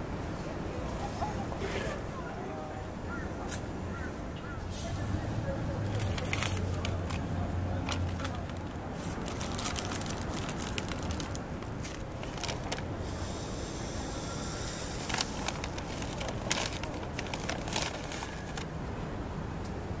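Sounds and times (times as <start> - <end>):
low background hum: 0.0 - 20.0
paper wrapper crinkling and tearing: 5.8 - 12.9, 14.9 - 18.7.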